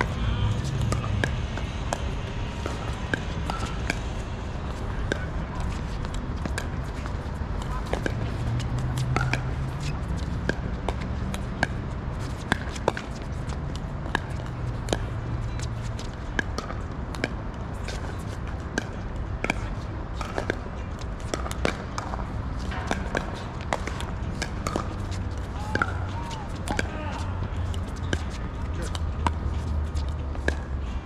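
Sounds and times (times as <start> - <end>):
paddles hitting ball: 0.0 - 30.6.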